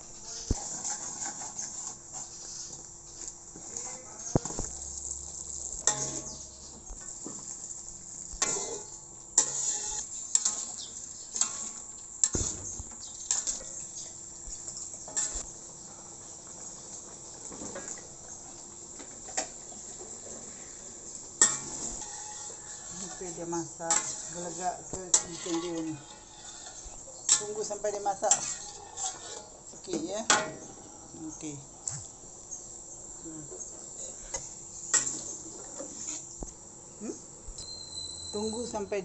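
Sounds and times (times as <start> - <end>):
metal spatula scraping in wok: 0.1 - 4.0, 5.7 - 13.9, 14.7 - 15.5, 21.4 - 29.6, 34.0 - 36.2
paste sizzling in oil: 0.1 - 29.8.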